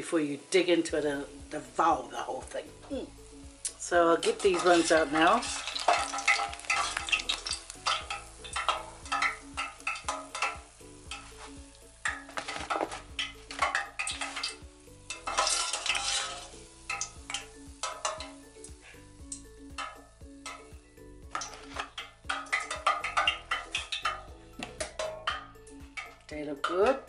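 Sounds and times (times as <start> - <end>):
dough balls sizzling in hot oil: 0.0 - 27.0
skimmer clinking against metal pot: 4.2 - 11.3, 12.0 - 18.7, 19.3 - 26.9.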